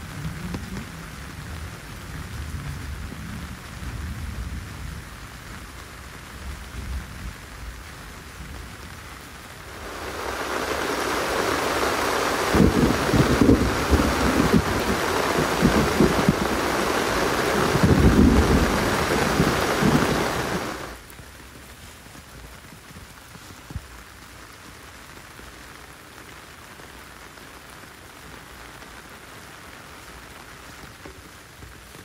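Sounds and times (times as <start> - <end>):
heavy rain pouring: 0.0 - 32.0
low rumbling: 9.7 - 21.0.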